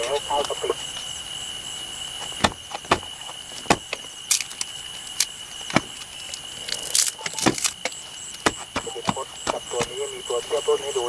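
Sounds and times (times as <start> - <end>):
high-pitched insect trill: 0.0 - 11.0
twigs snapping: 2.4 - 9.9.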